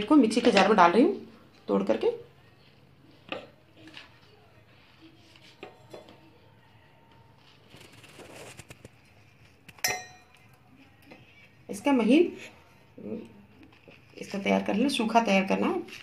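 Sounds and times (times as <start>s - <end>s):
bread tearing: 7.1s - 9.8s
bread pieces tapping metal jar: 9.7s - 10.4s.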